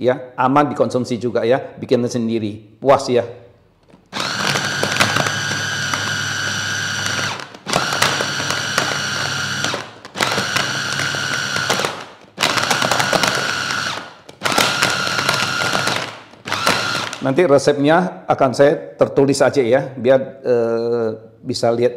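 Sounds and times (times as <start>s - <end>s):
electric food chopper whining: 4.1s - 17.4s.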